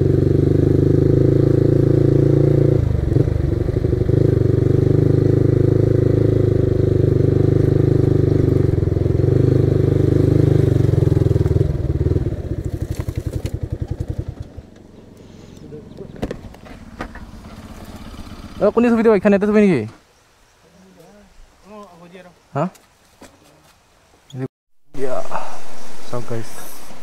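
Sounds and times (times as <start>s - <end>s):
motorcycle engine running: 0.0s - 19.2s.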